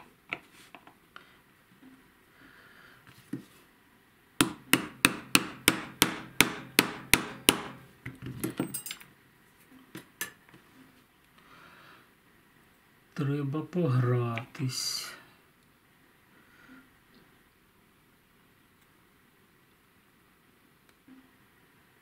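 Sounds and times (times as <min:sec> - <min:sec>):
hammer tapping metal punch: 0:04.4 - 0:07.8.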